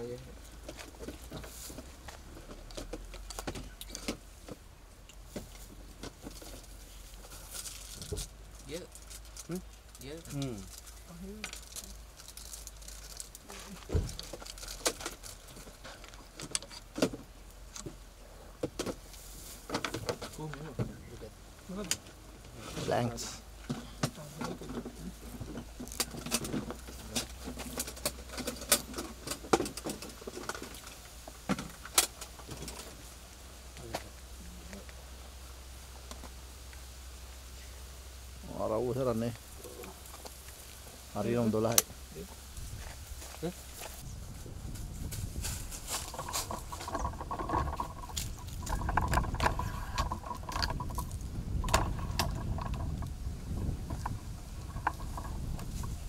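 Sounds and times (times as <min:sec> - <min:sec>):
gear clicking and rattling: 0:00.4 - 0:17.9, 0:24.5 - 0:33.1, 0:44.7 - 0:56.0
items clattering in plastic crates: 0:45.0 - 0:56.0.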